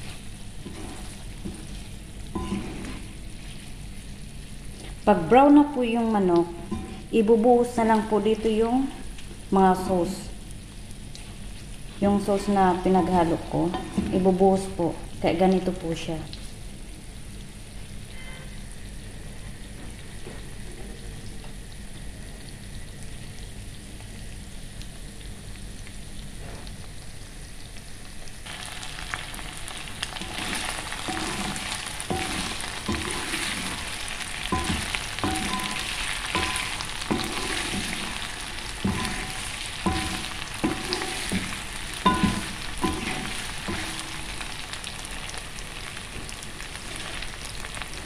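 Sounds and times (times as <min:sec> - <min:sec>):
wooden spatula scraping a pot: 0:00.0 - 0:03.8, 0:30.2 - 0:44.5
chicken sizzling in a pot: 0:00.0 - 0:48.0.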